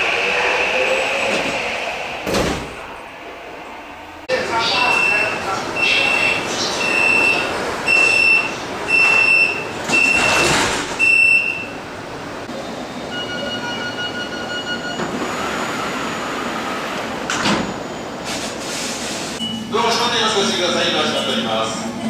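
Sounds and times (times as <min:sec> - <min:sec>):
station platform noise: 0:00.0 - 0:22.0
train door thump: 0:02.2 - 0:02.8
high electronic warning beeps: 0:04.8 - 0:10.3, 0:13.1 - 0:15.0.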